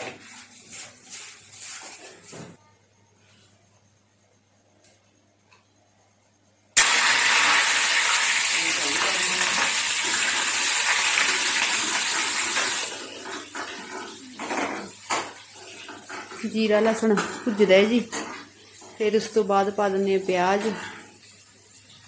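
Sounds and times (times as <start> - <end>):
spices sizzling in hot pan: 6.8 - 12.9.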